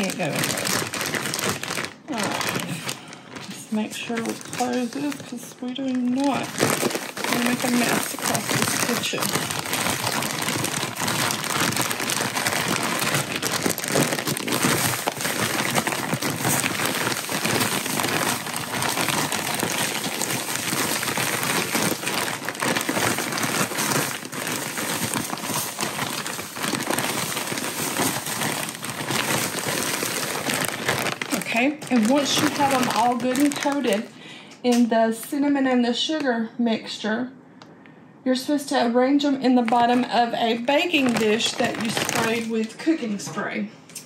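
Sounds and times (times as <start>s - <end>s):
plastic bag crinkling: 0.0s - 35.3s, 39.4s - 43.3s.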